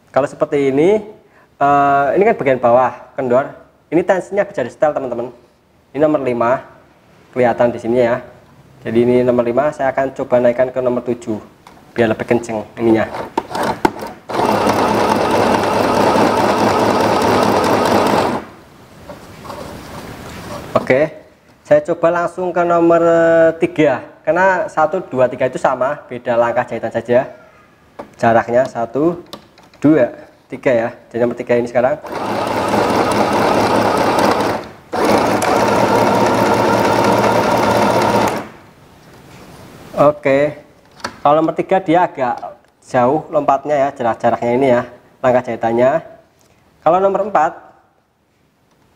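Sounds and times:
sewing machine running: 0:13.1 - 0:18.6, 0:32.0 - 0:38.5.

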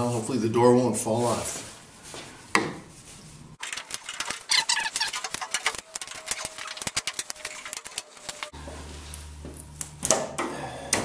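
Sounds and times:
wooden sticks cracking off: 0:03.6 - 0:08.5
squeaky scraping: 0:03.8 - 0:08.5.

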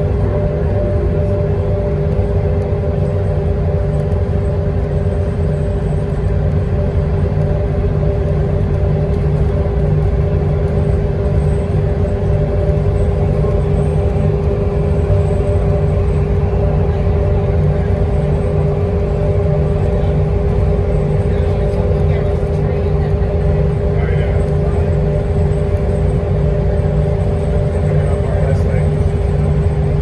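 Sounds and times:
bus engine drone: 0:00.0 - 0:30.0
constant hum: 0:00.0 - 0:30.0.

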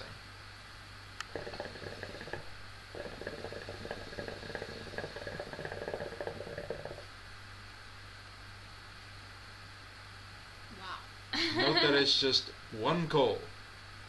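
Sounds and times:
hookah water bubbling: 0:01.2 - 0:07.1.

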